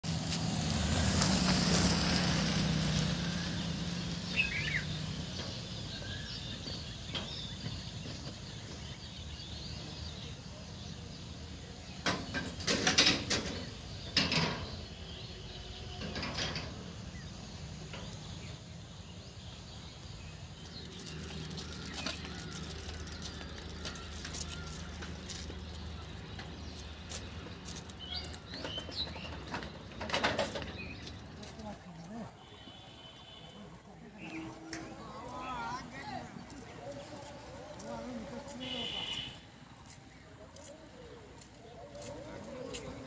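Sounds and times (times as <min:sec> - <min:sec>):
vehicle engine hum: 0:00.0 - 0:09.6, 0:12.3 - 0:32.6
birds chirping: 0:00.3 - 0:43.0.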